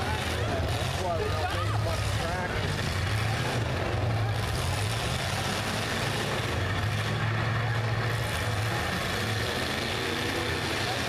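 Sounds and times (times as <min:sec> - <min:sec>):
car engines droning: 0:00.0 - 0:11.0.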